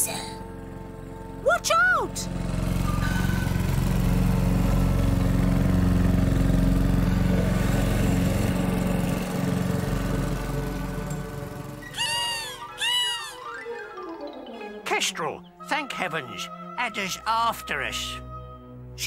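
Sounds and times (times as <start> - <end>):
mower engine droning: 0.0 - 12.6.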